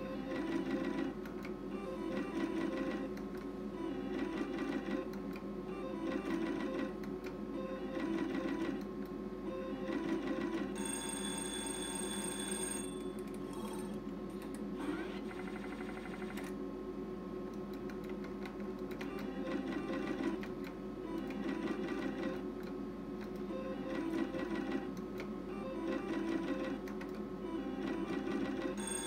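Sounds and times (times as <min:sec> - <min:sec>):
steady low hum: 0:00.0 - 0:29.0
ringing win tone: 0:28.8 - 0:29.0.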